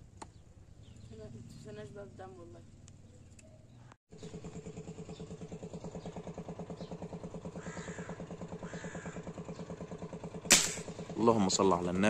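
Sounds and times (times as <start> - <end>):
engine idling: 0.0 - 12.0
crow cawing: 7.2 - 9.8.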